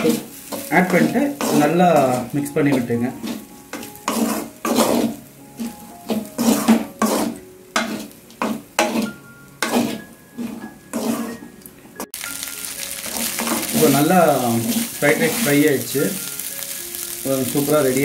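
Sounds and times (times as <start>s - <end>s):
spatula scraping rice in a pan: 0.0s - 11.5s, 13.0s - 15.8s.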